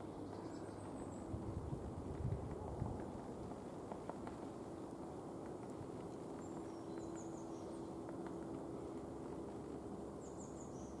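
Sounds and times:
outdoor background noise: 0:00.0 - 0:11.0
songbird chirping: 0:06.3 - 0:08.0.

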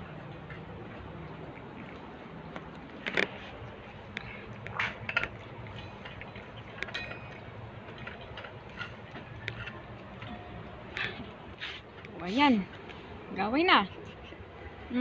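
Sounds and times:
metal bowls clinking: 0:04.7 - 0:11.3.

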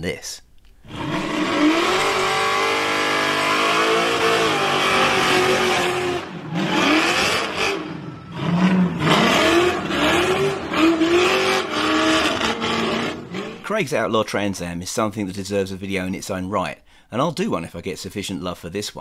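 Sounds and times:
car engine revving hard: 0:00.8 - 0:13.7.

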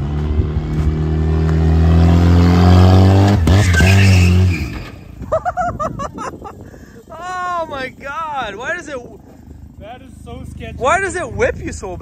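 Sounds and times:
car engine revving hard: 0:00.0 - 0:04.9
tire squeal: 0:03.3 - 0:05.2.

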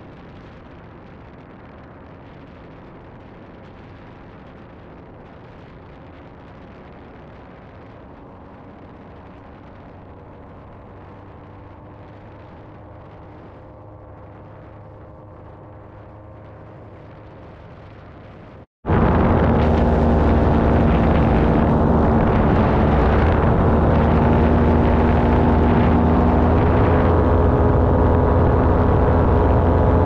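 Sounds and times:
wind rush: 0:00.0 - 0:30.0
paramotor engine droning: 0:07.3 - 0:30.0.

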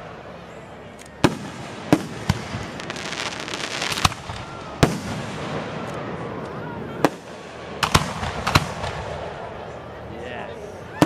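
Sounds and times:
firework bangs: 0:01.2 - 0:09.5.

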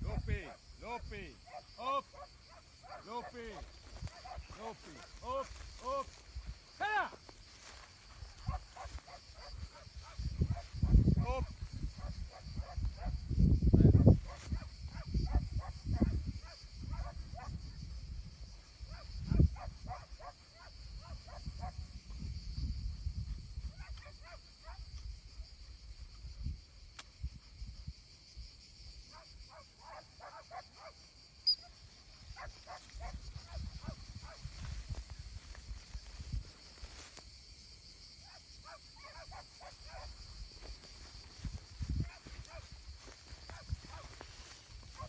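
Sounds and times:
wind buffeting microphone: 0:08.1 - 0:20.2, 0:21.0 - 0:24.0, 0:32.4 - 0:36.6, 0:39.9 - 0:45.0.

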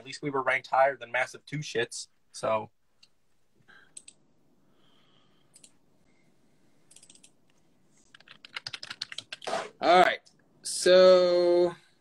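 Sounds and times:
computer keyboard typing: 0:04.0 - 0:04.2, 0:05.5 - 0:05.8, 0:06.9 - 0:07.4, 0:08.1 - 0:09.5.

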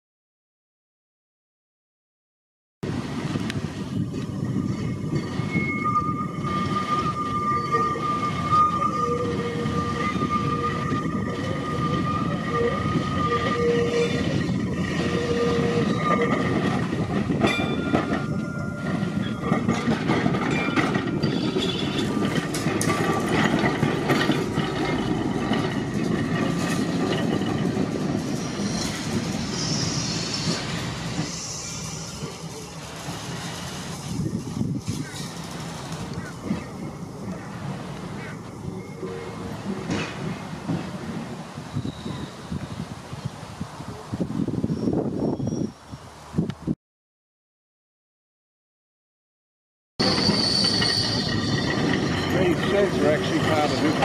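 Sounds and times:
tram rumbling on rails: 0:02.8 - 0:46.8, 0:50.0 - 0:54.0.

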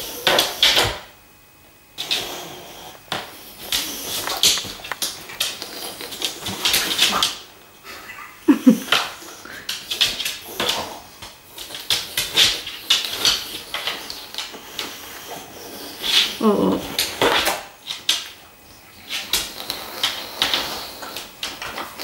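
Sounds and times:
dogs sniffing and snorting: 0:01.9 - 0:22.0
dog grunting: 0:15.0 - 0:17.3.

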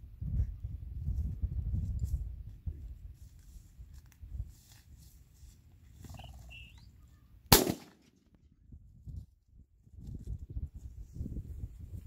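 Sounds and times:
shotgun shot: 0:07.5 - 0:08.2.

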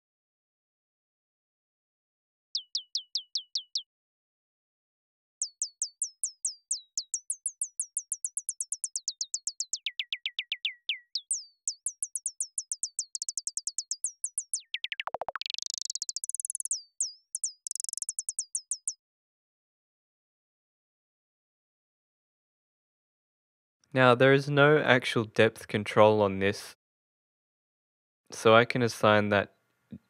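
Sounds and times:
synthesized bird chirps: 0:02.5 - 0:03.9, 0:05.4 - 0:19.0.

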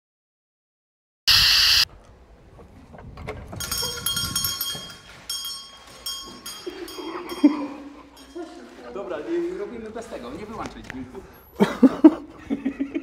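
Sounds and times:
loud burst of noise: 0:01.3 - 0:01.9
bell ringing: 0:03.6 - 0:08.7.

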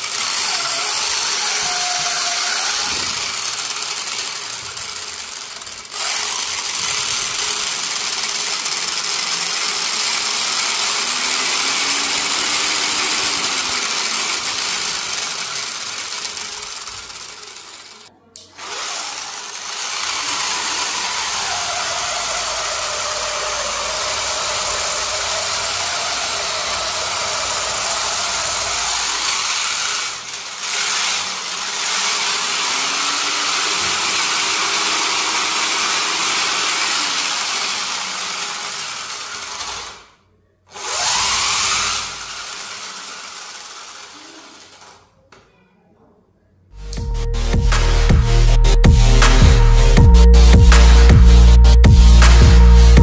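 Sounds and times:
small motor and gears whirring: 0:00.0 - 0:45.3.

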